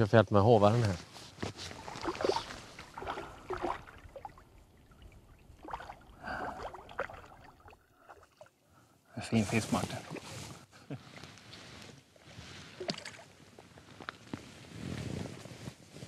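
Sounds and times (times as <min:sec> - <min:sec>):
fish thrashing water splashing: 0:01.7 - 0:08.5, 0:12.8 - 0:13.3.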